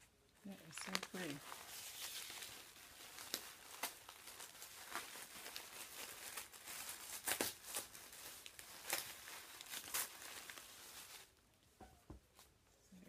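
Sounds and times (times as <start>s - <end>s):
tissue paper crinkling: 0.4s - 11.6s.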